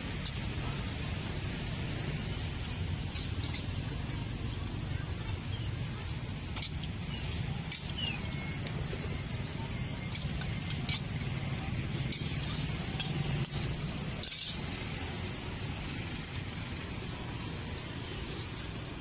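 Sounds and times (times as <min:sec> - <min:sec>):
metal spatula scraping wok: 0:10.0 - 0:15.2.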